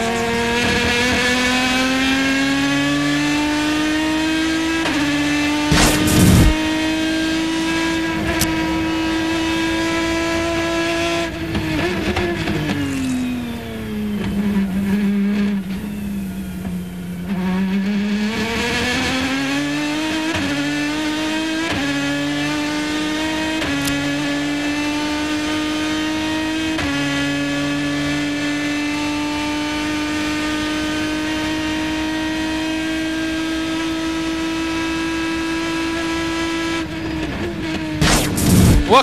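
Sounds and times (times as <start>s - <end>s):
race car engine accelerating: 0.0s - 39.0s
gear upshifts: 4.8s - 10.4s, 36.7s - 39.0s.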